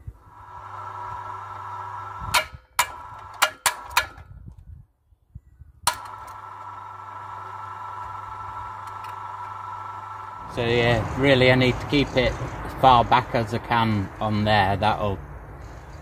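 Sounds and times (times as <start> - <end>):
hoist motor humming: 0.2 - 4.3, 5.9 - 13.6.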